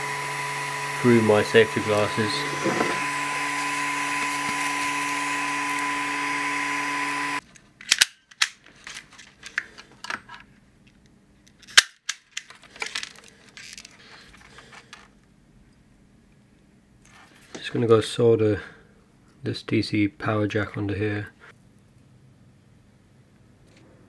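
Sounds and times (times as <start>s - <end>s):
cooling fan hum and whine: 0.0s - 7.4s
clicks and snaps of wire stripping: 7.4s - 9.7s.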